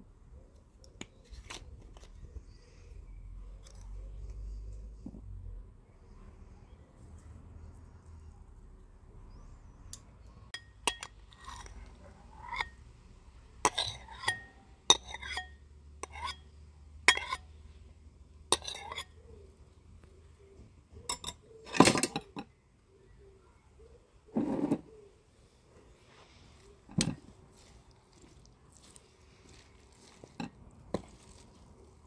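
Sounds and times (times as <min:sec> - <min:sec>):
utensil clinking against a dish: 0:13.6 - 0:17.5, 0:21.0 - 0:22.5.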